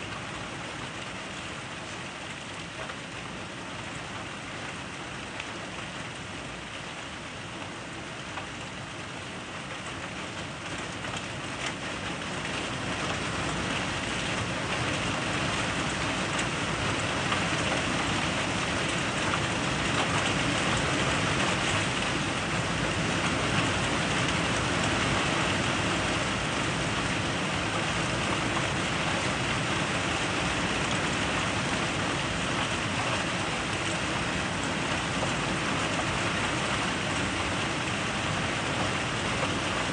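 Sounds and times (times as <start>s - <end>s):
heavy rain downpour: 0.0s - 39.9s.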